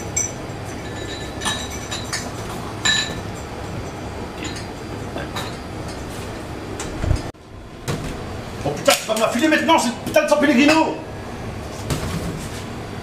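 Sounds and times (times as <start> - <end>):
drinking glasses clinking: 0.0 - 6.0.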